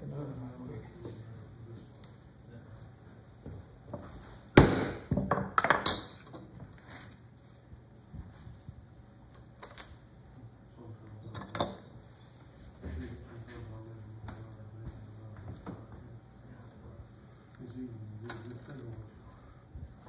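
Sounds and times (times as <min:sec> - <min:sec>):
tools knocking on wooden workbench: 0:05.0 - 0:06.0.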